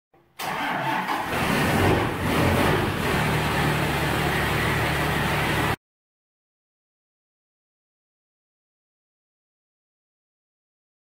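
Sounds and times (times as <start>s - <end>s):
vehicle engine running: 1.3s - 5.8s.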